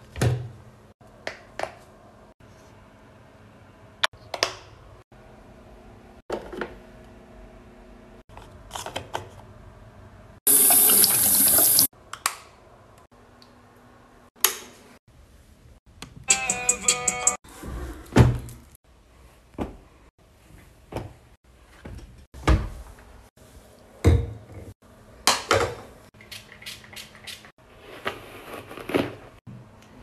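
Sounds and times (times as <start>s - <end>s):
running water rushing: 10.5s - 11.9s.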